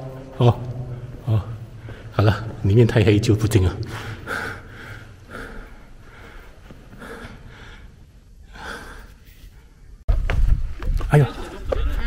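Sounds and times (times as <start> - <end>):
man breathing heavily: 0.8 - 2.2, 3.9 - 9.8.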